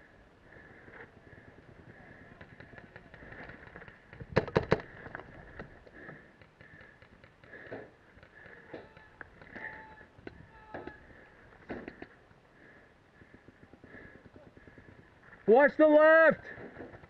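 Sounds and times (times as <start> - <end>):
paintball marker firing pops: 3.8 - 4.9.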